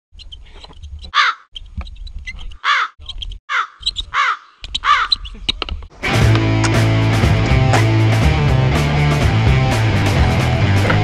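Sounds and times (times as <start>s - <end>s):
crows cawing: 1.2s - 1.5s, 2.6s - 5.3s.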